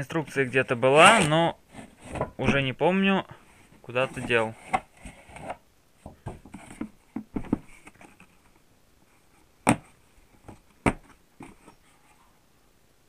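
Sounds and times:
plastic case knocks and rustles: 0:04.2 - 0:08.0, 0:09.6 - 0:11.6.

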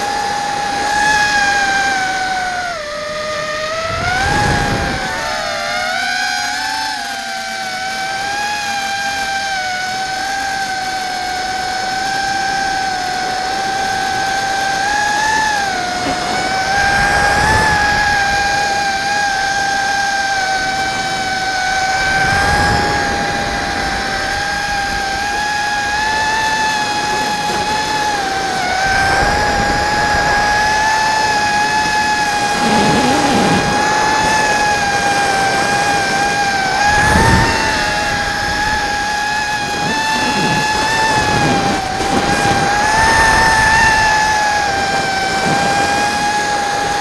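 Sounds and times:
quadcopter motors whining: 0:00.0 - 0:47.0.

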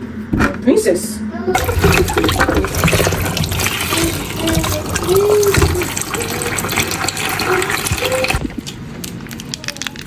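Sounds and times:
hands swishing potatoes in water: 0:01.6 - 0:08.4
tap water running into a bowl: 0:01.6 - 0:08.6.

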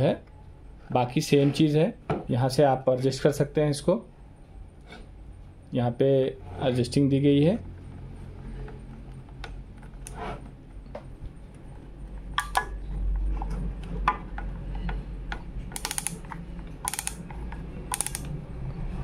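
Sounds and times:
planer knob clicking: 0:17.9 - 0:18.3.

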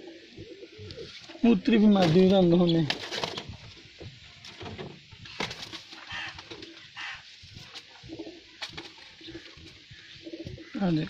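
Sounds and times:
pigeons cooing: 0:00.0 - 0:11.0
rustling of pigeon being handled: 0:00.0 - 0:11.0.

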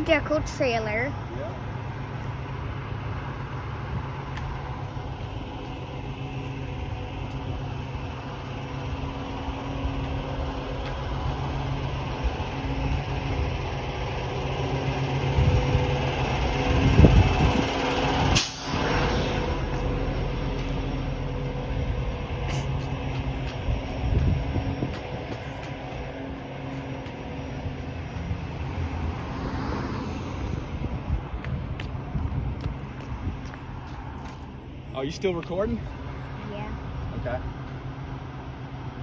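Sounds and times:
truck diesel engine idling: 0:00.0 - 0:29.1.

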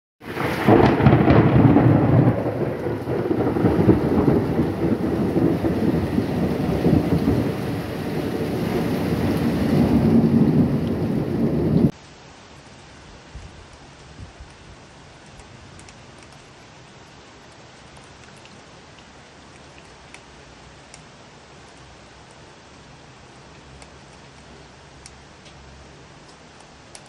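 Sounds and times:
thunder rumbling: 0:00.2 - 0:12.0
heavy downpour: 0:00.2 - 0:27.0.

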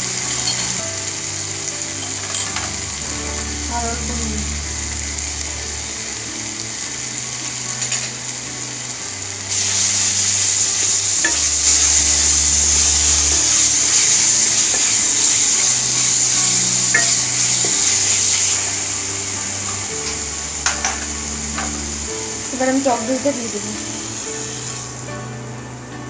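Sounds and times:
onion masala sizzling in hot oil: 0:00.0 - 0:25.0.

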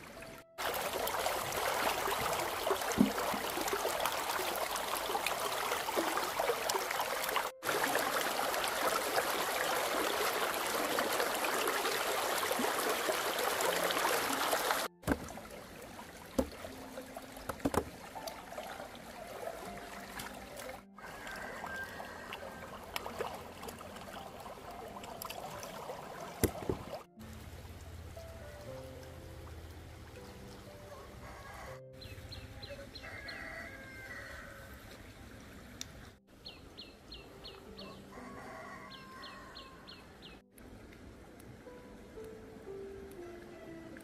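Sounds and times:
stream water running: 0:00.0 - 0:44.0
hands splashing in water: 0:00.6 - 0:16.8, 0:17.4 - 0:27.1.

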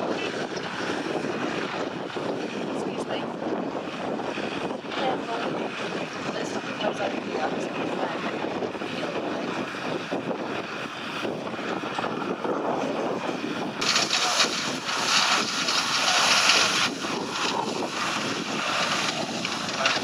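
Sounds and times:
engine drone: 0:00.0 - 0:20.0
hiss of fire-fighting spray: 0:13.8 - 0:20.0.

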